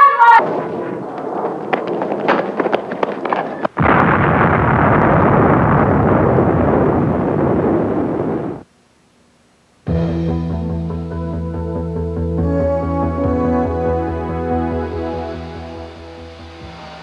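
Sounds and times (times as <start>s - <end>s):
rapid crackling and popping: 0.0s - 9.9s
loud explosion roar: 0.3s - 8.6s.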